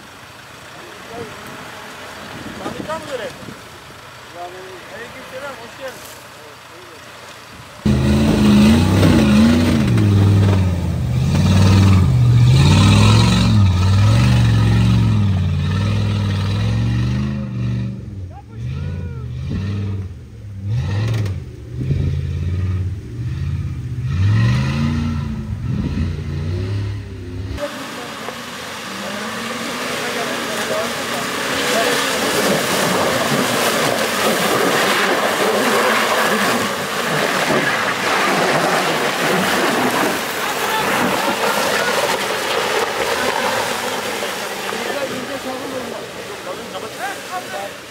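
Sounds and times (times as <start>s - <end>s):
car engine revving under load: 0.0s - 47.9s
tyres spinning in mud: 27.7s - 47.9s.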